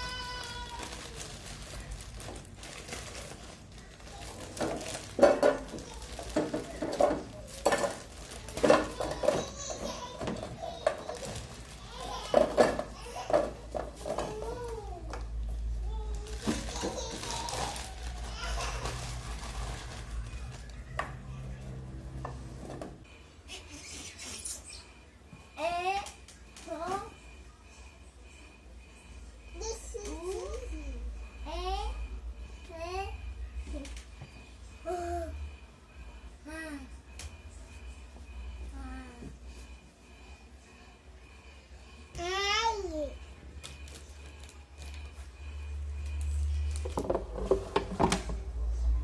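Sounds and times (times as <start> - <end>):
plastic bag crinkling: 0.0 - 13.3, 16.1 - 20.9
frozen fries clattering in basket: 0.0 - 14.5, 16.2 - 20.7.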